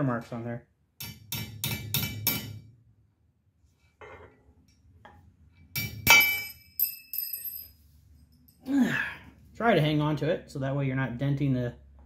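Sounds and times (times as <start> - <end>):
high metallic ringing tone: 5.9 - 8.7.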